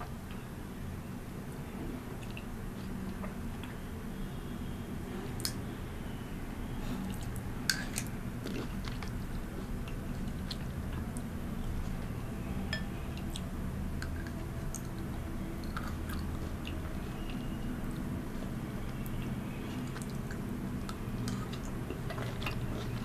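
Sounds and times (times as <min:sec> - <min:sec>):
close chewing of fruit: 0:06.9 - 0:11.2, 0:13.1 - 0:23.0.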